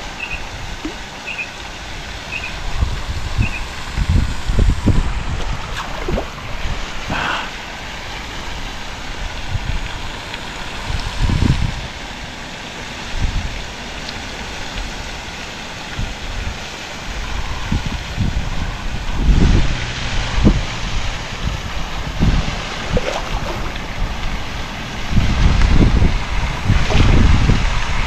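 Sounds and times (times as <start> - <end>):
wind buffeting microphone: 2.1 - 7.4, 9.0 - 12.0, 17.2 - 28.0.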